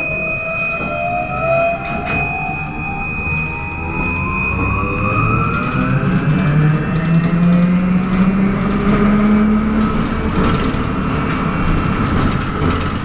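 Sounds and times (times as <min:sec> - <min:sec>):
electric motor whine: 0:00.0 - 0:07.4
rumble of tyres: 0:00.0 - 0:13.0.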